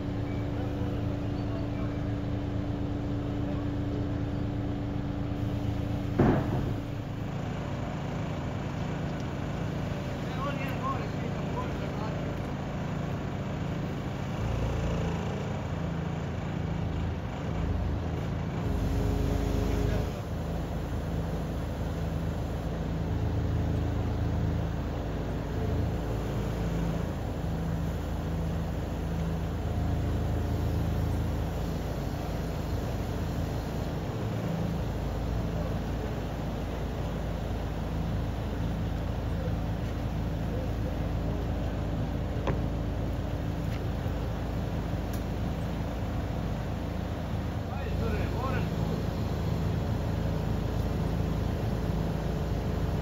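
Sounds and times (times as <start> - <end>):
truck engine humming: 0.0 - 53.0
loud metal clank: 6.1 - 6.9.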